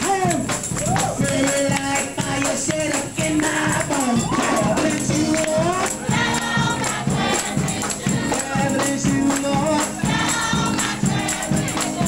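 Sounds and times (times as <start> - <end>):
steady beat: 0.0 - 12.0
tambourine: 0.0 - 12.0
choir singing: 4.4 - 8.8, 9.7 - 12.0.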